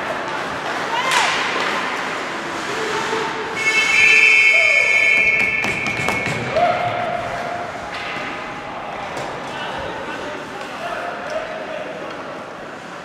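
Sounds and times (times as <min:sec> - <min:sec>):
shrill signal blast: 0:03.6 - 0:06.9
sharp knocks: 0:05.2 - 0:06.5
people shouting: 0:06.4 - 0:07.6.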